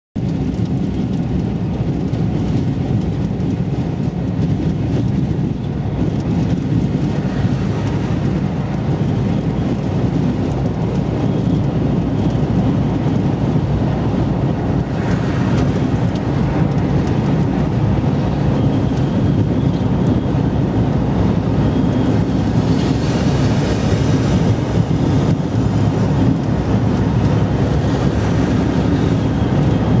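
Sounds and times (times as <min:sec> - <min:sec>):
vehicle road and engine rumble: 0:00.2 - 0:30.0.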